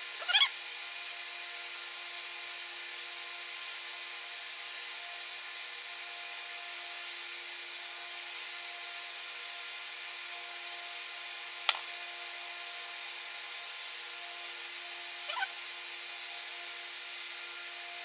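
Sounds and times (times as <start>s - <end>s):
sharp click: 11.7s - 11.9s.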